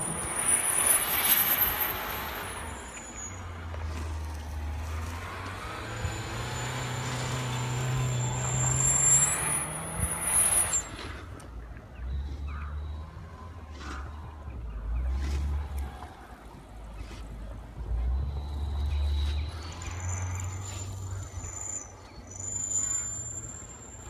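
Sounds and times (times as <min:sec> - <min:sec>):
car engine revving: 0:00.0 - 0:11.4
wheels spinning in snow: 0:00.0 - 0:24.0.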